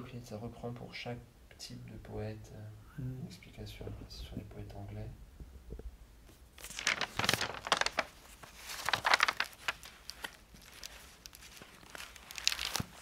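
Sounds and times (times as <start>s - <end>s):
binder pages rustling: 6.3s - 13.0s.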